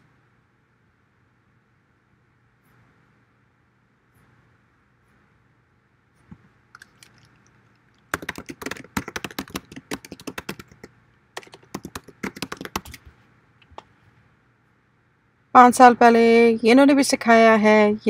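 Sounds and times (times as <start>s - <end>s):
keyboard typing: 6.8s - 13.9s.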